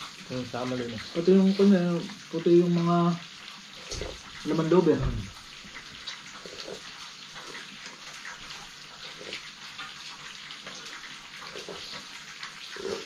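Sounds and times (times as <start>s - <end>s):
rushing water: 0.0s - 13.0s.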